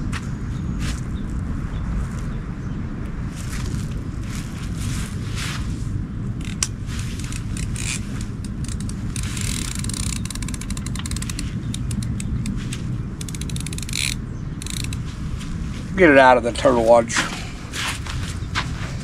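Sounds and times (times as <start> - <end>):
wind on microphone: 0.0 - 16.1
fishing reel ratchet ticking: 6.4 - 15.0.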